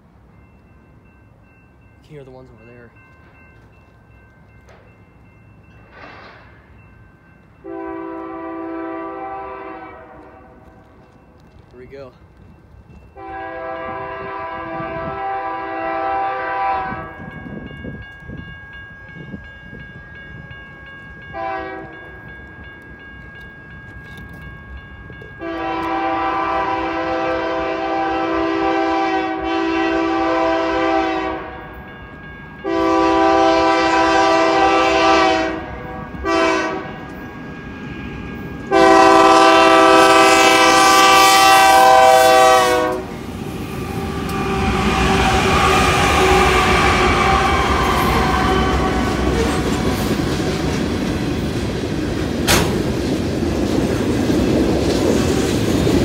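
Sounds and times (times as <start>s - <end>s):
crossing bells ringing: 0.0s - 53.0s
locomotive rumble: 2.0s - 56.0s
locomotive horn blasts: 7.6s - 10.6s, 13.2s - 17.3s, 21.3s - 22.0s, 25.4s - 31.8s, 32.6s - 37.1s, 38.7s - 43.2s, 44.1s - 49.6s.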